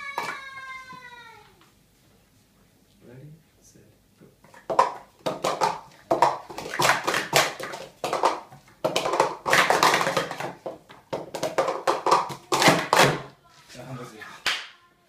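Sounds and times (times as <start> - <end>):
plastic cups clattering: 4.4 - 13.3.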